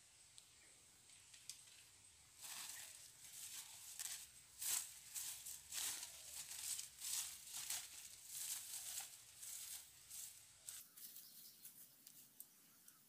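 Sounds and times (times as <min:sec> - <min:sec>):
footsteps through dry vegetation: 0:02.4 - 0:12.4.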